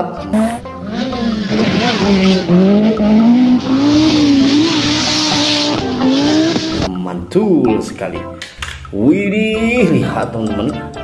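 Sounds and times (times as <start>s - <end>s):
rally car engine revving: 0.4s - 6.9s.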